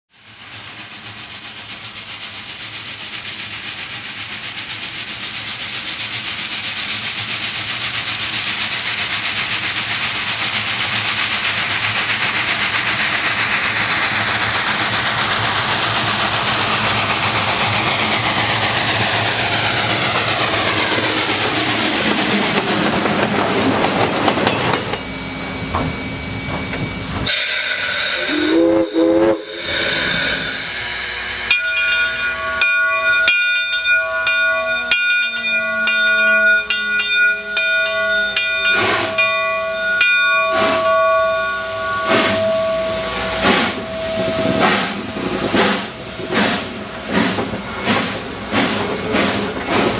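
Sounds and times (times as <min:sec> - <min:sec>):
escaping steam: 0:00.1 - 0:49.9
rail noise: 0:00.1 - 0:49.9
steam locomotive exhaust: 0:00.1 - 0:49.9
steam whistle blasts: 0:25.4 - 0:45.1
bell ringing: 0:29.9 - 0:44.6.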